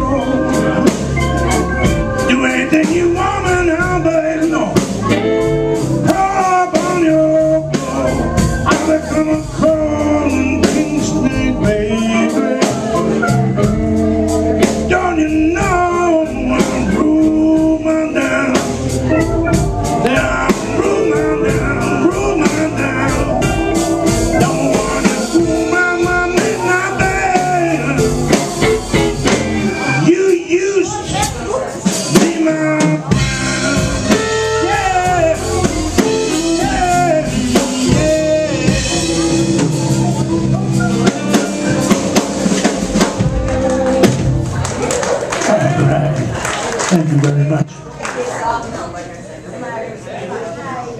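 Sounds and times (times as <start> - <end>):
blues band playing: 0.0 - 48.8
man singing into a microphone: 2.2 - 4.9, 6.0 - 28.4, 29.6 - 42.2.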